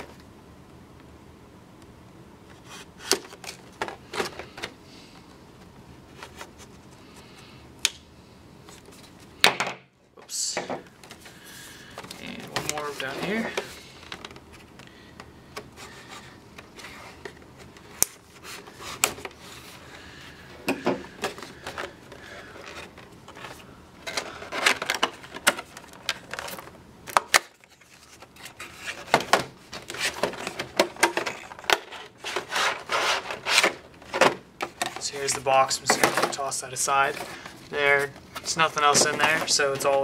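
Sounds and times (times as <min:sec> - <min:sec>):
cardboard box and plastic crinkling: 0:21.1 - 0:40.0.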